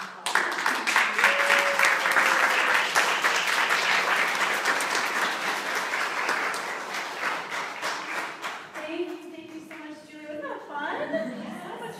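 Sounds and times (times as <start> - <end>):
audience applauding: 0.0 - 9.5.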